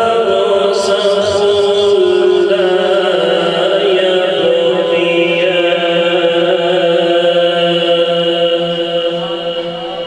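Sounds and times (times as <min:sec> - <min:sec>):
man reciting melodically over loudspeaker: 0:00.0 - 0:10.0.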